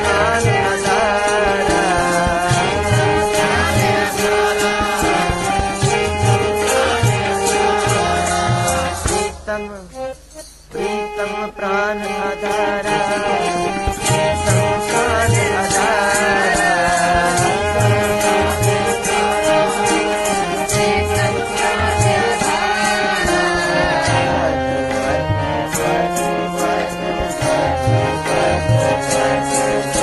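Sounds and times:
tabla strokes: 0.0s - 10.7s
jingling percussion: 0.0s - 11.2s, 12.1s - 30.0s
harmonium chords: 0.0s - 30.0s
man singing with vibrato: 0.0s - 30.0s.

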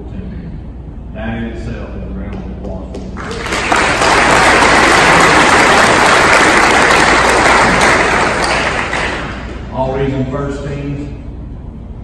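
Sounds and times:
audience applauding: 3.2s - 9.7s.

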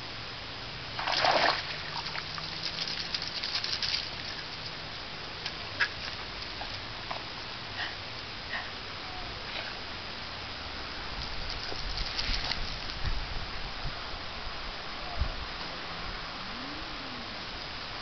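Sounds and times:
dog splashing out of water: 1.0s - 4.4s.

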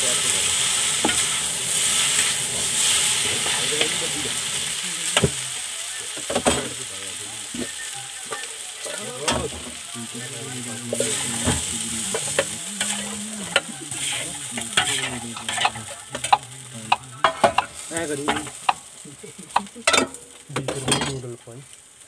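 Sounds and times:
noodles sizzling in oil: 0.0s - 22.0s
metal ladle scraping a wok: 0.2s - 5.3s, 10.9s - 16.6s.

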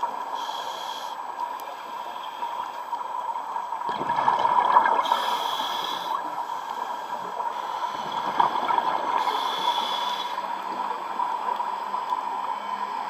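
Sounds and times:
underwater bubbling: 0.0s - 13.0s
regulator breath hissing: 0.3s - 1.2s, 5.0s - 8.4s, 9.2s - 10.5s.

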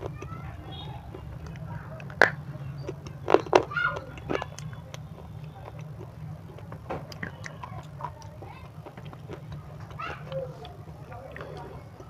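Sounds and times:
crunching bites: 0.0s - 12.0s.

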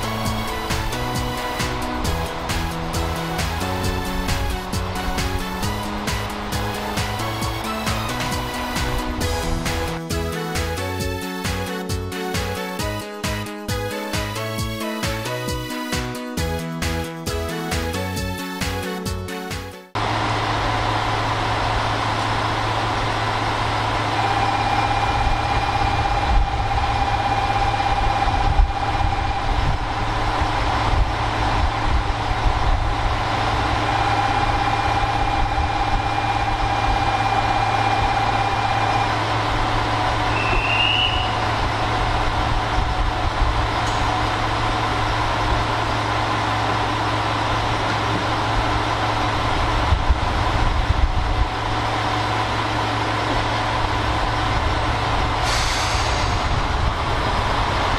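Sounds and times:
long steady tones: 0.0s - 16.7s, 20.0s - 55.4s
diesel engine idling hum: 0.0s - 19.3s, 19.9s - 57.9s
short chirp: 40.3s - 41.4s.

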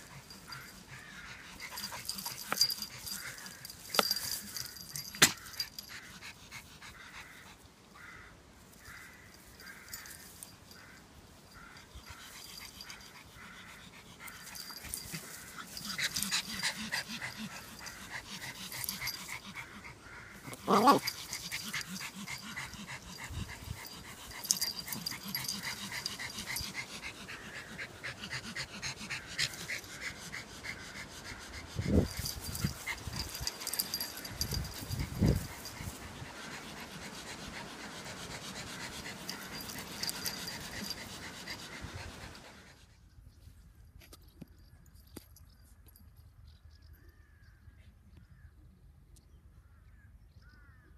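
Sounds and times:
dogs breathing fast: 0.0s - 7.8s, 11.6s - 43.1s.

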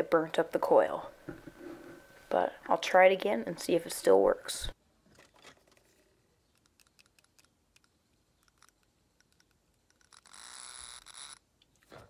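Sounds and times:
alligator clips clicking: 6.5s - 11.8s
small motor whirring: 10.0s - 11.4s.

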